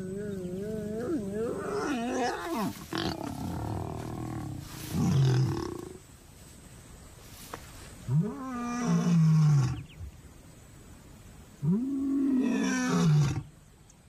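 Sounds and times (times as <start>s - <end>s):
lions growling and snarling: 0.0s - 6.0s.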